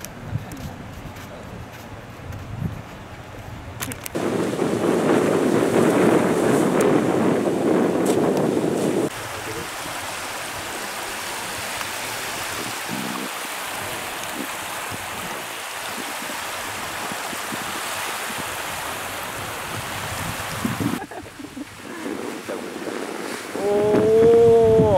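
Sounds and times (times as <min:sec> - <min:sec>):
choppy waves on open water: 0:00.0 - 0:24.9
wind rushing: 0:04.2 - 0:10.9, 0:12.1 - 0:24.9.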